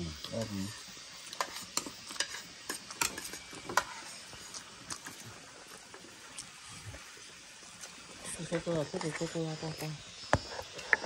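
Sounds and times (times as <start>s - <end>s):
spoons clinking against plates: 1.3s - 4.0s.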